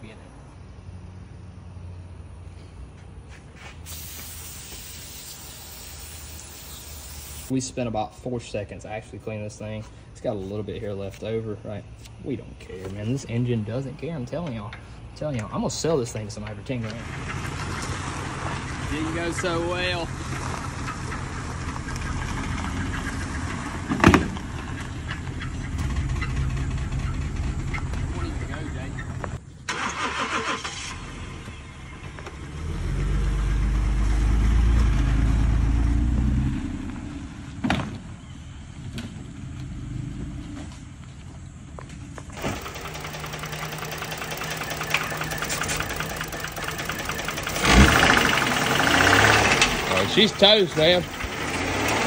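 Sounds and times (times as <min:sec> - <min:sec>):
car engine rumbling: 0:12.6 - 0:37.6, 0:42.0 - 0:52.0
car engine knocking: 0:42.4 - 0:52.0
loud engine bang: 0:47.4 - 0:52.0.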